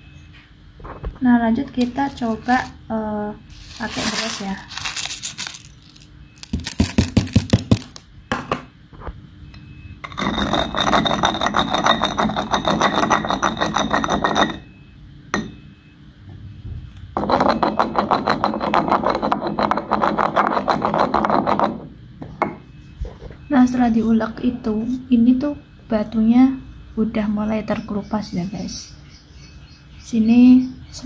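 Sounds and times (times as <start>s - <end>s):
pestle grinding rice in mortar: 6.4s - 8.0s, 10.1s - 14.6s, 17.2s - 21.8s.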